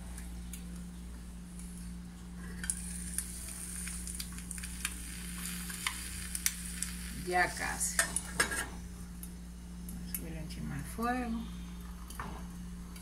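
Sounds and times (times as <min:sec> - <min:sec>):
egg sizzling in a frying pan: 0:02.5 - 0:08.8.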